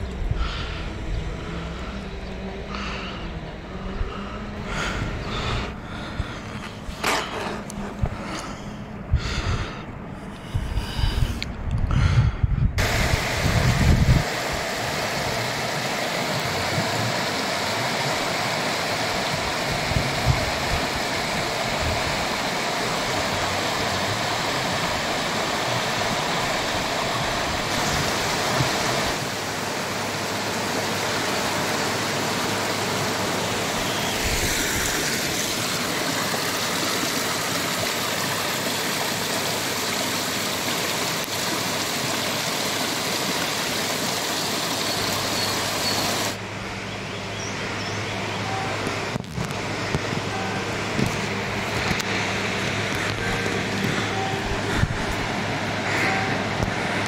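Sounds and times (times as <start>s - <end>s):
stream rushing over rocks: 12.8s - 46.5s, 48.6s - 57.0s.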